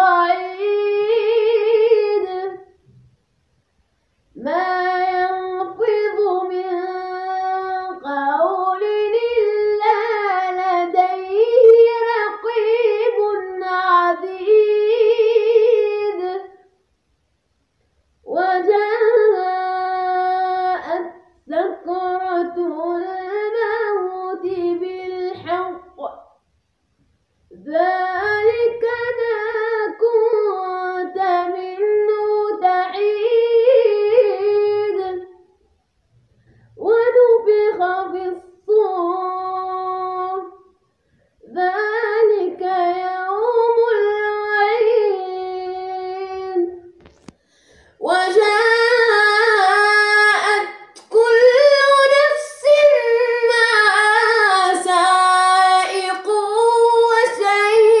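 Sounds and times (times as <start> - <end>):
person reciting in melodic chant: 23.9 - 26.2.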